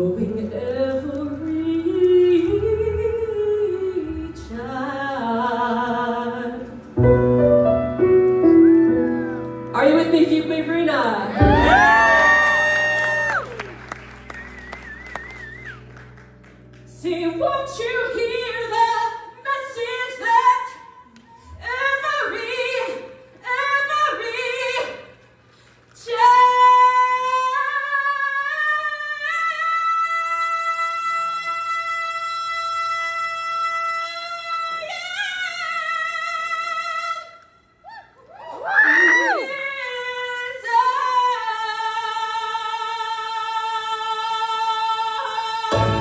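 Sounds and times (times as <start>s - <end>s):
woman singing into microphone: 0.0s - 7.0s, 26.0s - 37.3s, 38.9s - 46.0s.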